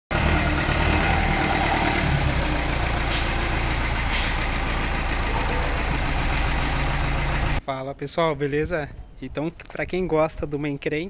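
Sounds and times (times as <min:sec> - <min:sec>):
truck engine idling: 0:00.1 - 0:07.6.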